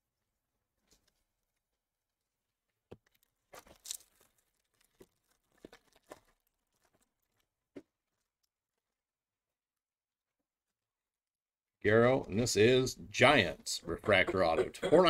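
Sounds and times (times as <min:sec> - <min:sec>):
wrapper tearing with crinkling rip: 0:03.1 - 0:08.3.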